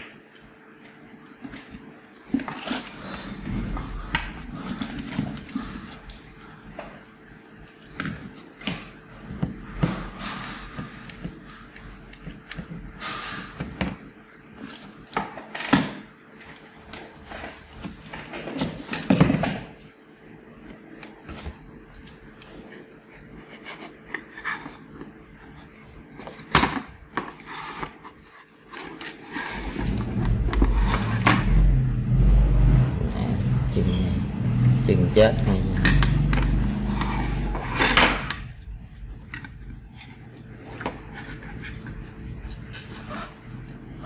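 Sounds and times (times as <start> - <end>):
low rumble: 29.8 - 37.6.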